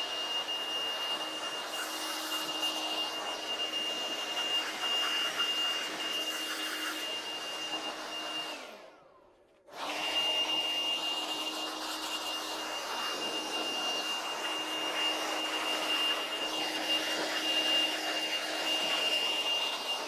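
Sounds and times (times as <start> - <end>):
air blower high whine: 0.0 - 20.0.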